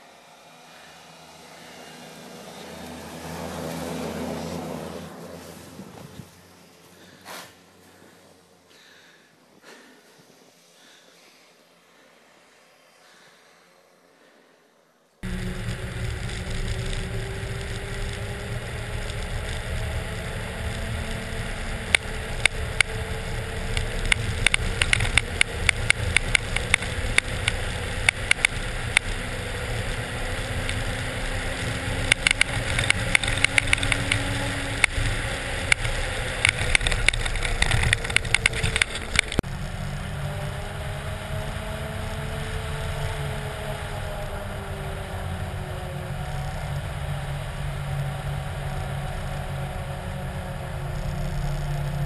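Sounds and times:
rapid sharp clicks: 15.2s - 29.2s, 30.4s - 39.4s
truck driving low rumble: 15.2s - 52.0s.

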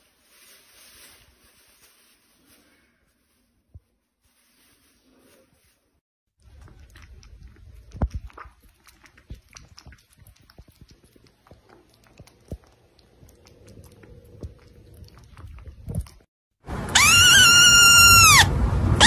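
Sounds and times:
kitten lapping water: 6.4s - 16.3s.

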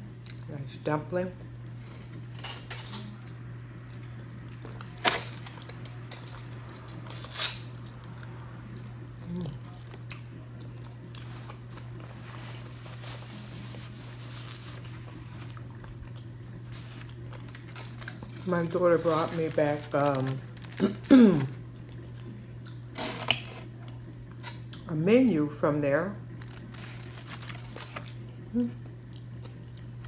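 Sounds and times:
low hum: 0.0s - 30.0s
person chewing: 3.1s - 18.5s, 20.4s - 24.8s, 26.4s - 30.0s.

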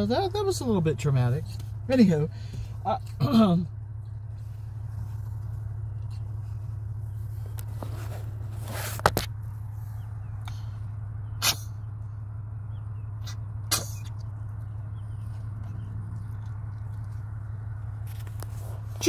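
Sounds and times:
diesel truck engine idling: 0.0s - 19.0s
short sharp noises: 11.4s - 11.8s, 13.2s - 14.2s.

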